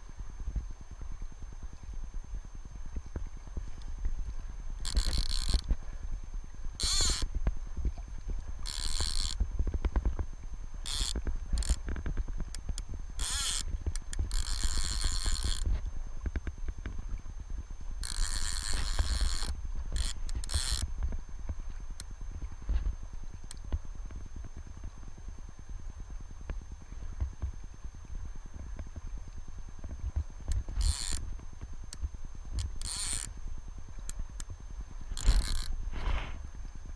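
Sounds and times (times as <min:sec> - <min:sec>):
fishing reel ratchet buzzing: 0:04.8 - 0:05.7, 0:06.8 - 0:07.3, 0:08.6 - 0:09.4, 0:10.8 - 0:15.7, 0:18.0 - 0:20.9, 0:30.5 - 0:31.2, 0:32.5 - 0:33.3, 0:35.1 - 0:35.8.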